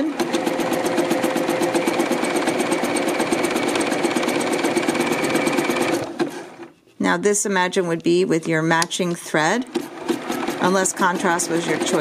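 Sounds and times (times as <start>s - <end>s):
sewing machine stitching: 0.0s - 6.7s, 9.4s - 12.0s.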